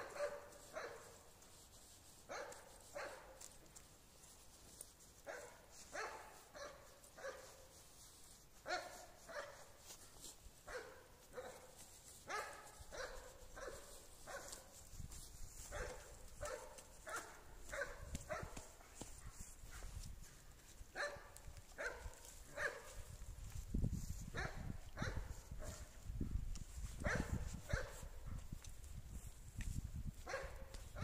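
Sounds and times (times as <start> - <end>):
dog barking: 0.0 - 1.2, 2.3 - 3.4, 5.3 - 7.6, 8.7 - 9.7, 10.7 - 11.7, 12.3 - 14.7, 15.7 - 19.9, 20.9 - 23.0, 24.3 - 25.9, 27.0 - 28.4, 30.2 - 31.0.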